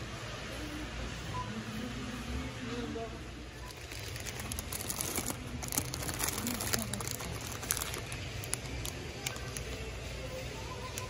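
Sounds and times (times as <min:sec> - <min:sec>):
plastic packet crinkling: 0:03.6 - 0:09.9.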